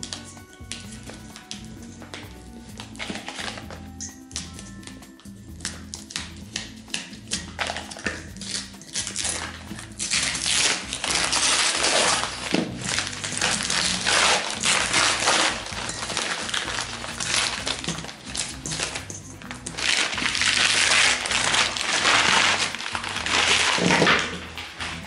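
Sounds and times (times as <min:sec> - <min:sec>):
paper crinkling and tearing: 0:07.6 - 0:25.0.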